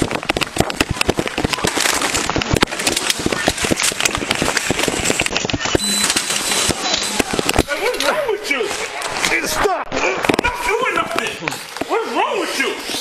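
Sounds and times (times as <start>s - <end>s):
camera rubbing against clothing: 0.0s - 9.6s.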